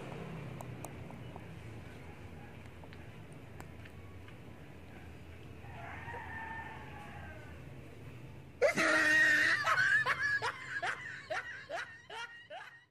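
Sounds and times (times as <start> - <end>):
person shrieking: 8.6 - 10.1
person laughing: 8.6 - 12.9.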